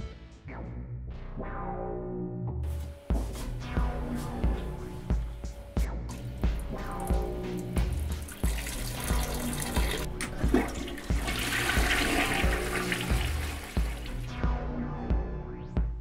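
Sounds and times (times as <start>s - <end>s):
music with heavy bass beat: 2.7s - 16.0s
urine stream into toilet bowl: 6.5s - 14.4s
toilet flushing: 6.6s - 14.4s.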